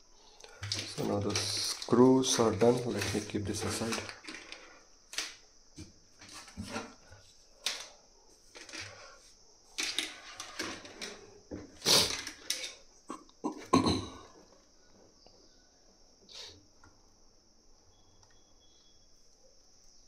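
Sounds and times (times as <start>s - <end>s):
handling knocks and clicks: 0.4s - 7.0s.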